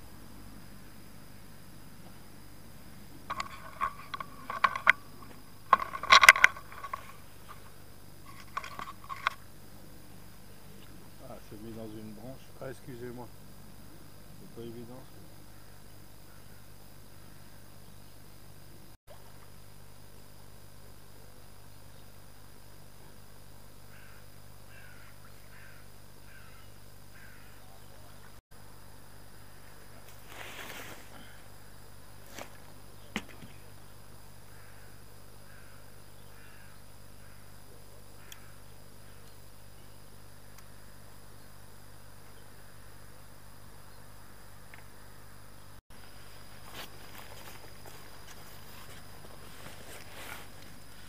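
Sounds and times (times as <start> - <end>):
steady low hum: 0.0 - 51.0
fishing reel ratcheting: 3.3 - 7.6.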